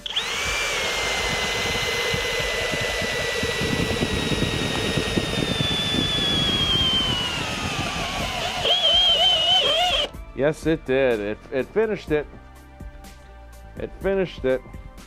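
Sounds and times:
drill bit cutting wood: 0:00.0 - 0:10.1
drill motor whine: 0:00.0 - 0:10.2.

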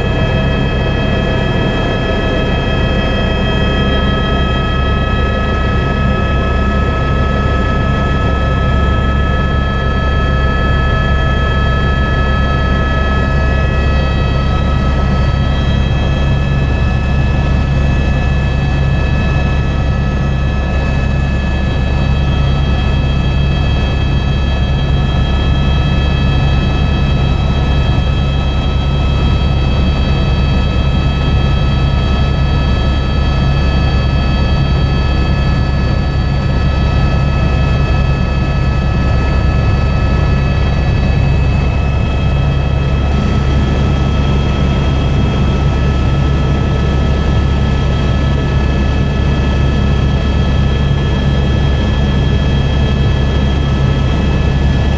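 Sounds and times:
helicopter rotor and engine noise: 0:00.0 - 0:54.9.

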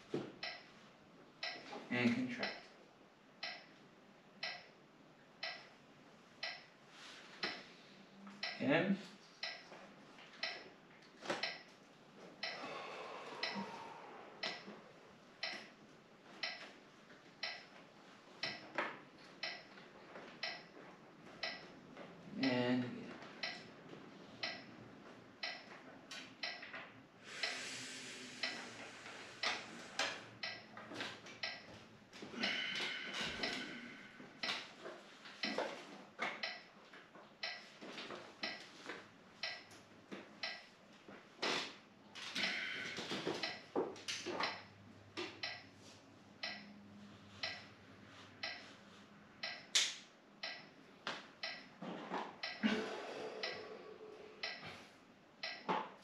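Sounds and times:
regular ticking: 0:00.4 - 0:00.7, 0:01.4 - 0:01.7, 0:02.4 - 0:02.8, 0:03.4 - 0:03.8, 0:04.4 - 0:04.8, 0:05.4 - 0:05.8, 0:06.4 - 0:06.8, 0:07.4 - 0:07.7, 0:08.4 - 0:08.7, 0:09.4 - 0:09.8, 0:10.4 - 0:10.7, 0:11.4 - 0:11.7, 0:12.4 - 0:12.7, 0:13.4 - 0:14.7, 0:15.4 - 0:15.8, 0:16.4 - 0:16.7, 0:17.4 - 0:17.8, 0:18.4 - 0:19.8, 0:20.4 - 0:20.8, 0:21.4 - 0:22.7, 0:23.3 - 0:23.8, 0:24.4 - 0:26.8, 0:28.3 - 0:31.8, 0:32.4 - 0:35.6, 0:36.3 - 0:36.8, 0:37.4 - 0:39.8, 0:40.4 - 0:40.7, 0:42.3 - 0:45.7, 0:46.4 - 0:46.8, 0:47.4 - 0:47.8, 0:48.4 - 0:48.8, 0:49.4 - 0:50.8, 0:51.4 - 0:51.8, 0:52.4 - 0:52.8, 0:53.4 - 0:53.7, 0:54.4 - 0:54.8, 0:55.4 - 0:56.0.

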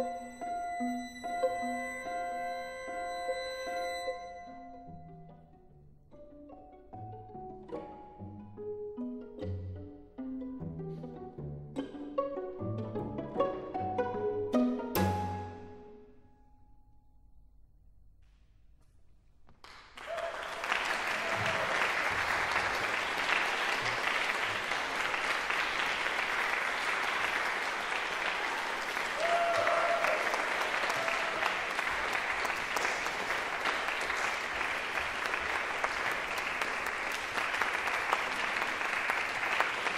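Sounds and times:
audience applauding: 0:19.6 - 0:39.9.

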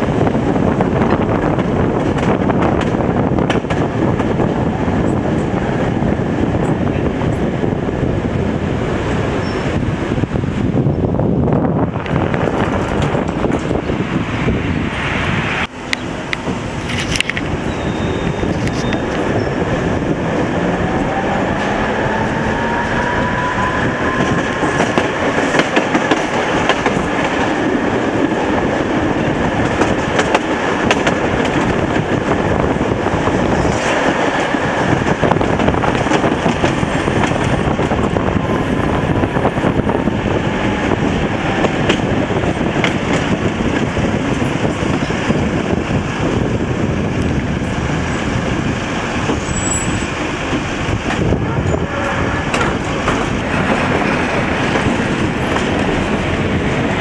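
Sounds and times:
tram rumbling and rattling: 0:00.0 - 0:57.0
tram whine: 0:00.0 - 0:57.0
wheels clicking over rail joints: 0:24.0 - 0:32.8, 0:49.2 - 0:57.0.

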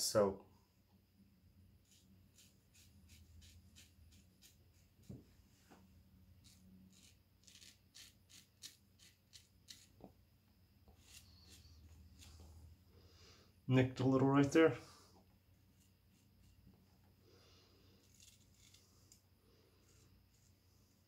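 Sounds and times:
razor rasping on stubble: 0:01.8 - 0:04.8, 0:06.4 - 0:09.9, 0:11.0 - 0:12.4, 0:18.0 - 0:18.8.

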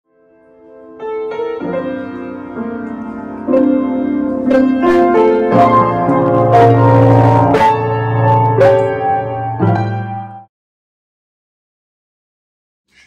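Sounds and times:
piano chords: 0:00.1 - 0:10.5.

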